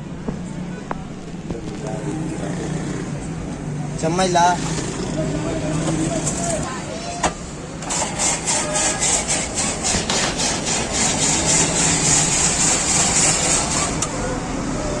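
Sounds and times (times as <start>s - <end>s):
ice-shaving machine rasping: 7.8s - 14.0s.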